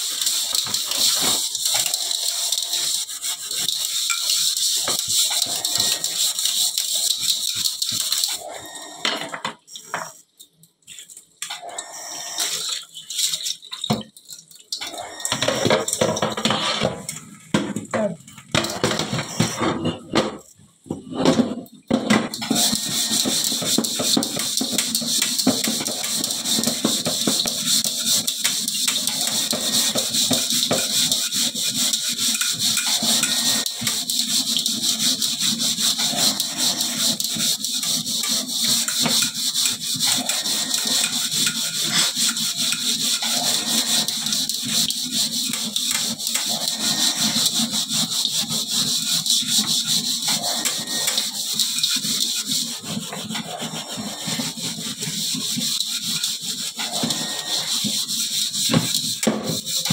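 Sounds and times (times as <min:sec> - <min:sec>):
running tap water hiss: 0:00.0 - 0:08.6, 0:22.4 - 0:59.9
sponge scrubbing metal wok: 0:00.0 - 0:59.9.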